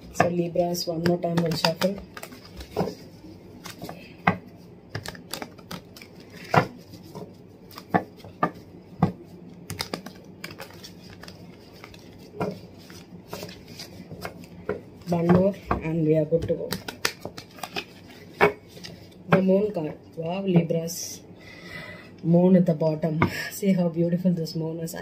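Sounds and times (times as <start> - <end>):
cards being shuffled: 0.9 - 15.7, 16.4 - 19.4.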